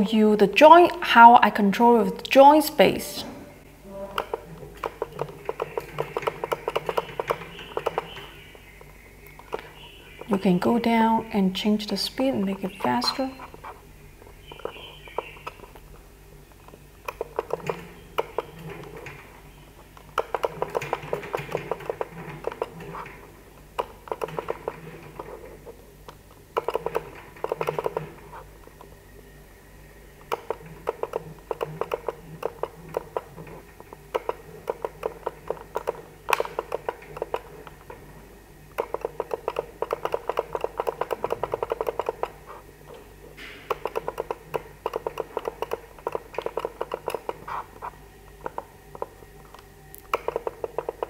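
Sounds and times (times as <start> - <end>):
low steady hum: 0.0 - 51.0
robot arm joint motors ticking: 4.1 - 29.0, 30.1 - 51.0.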